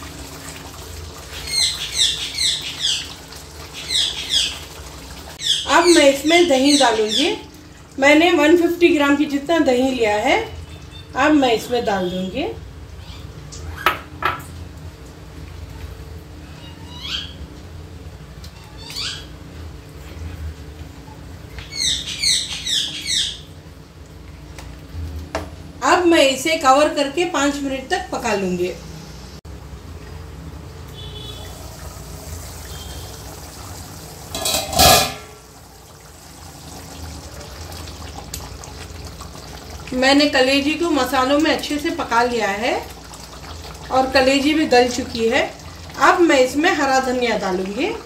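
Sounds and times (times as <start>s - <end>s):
curry bubbling in a pan: 0.0s - 13.7s, 29.7s - 48.0s.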